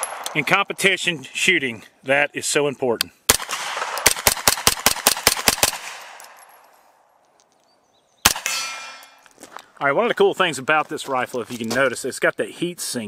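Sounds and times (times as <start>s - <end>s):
rapid gunshots with echo: 3.3s - 6.2s.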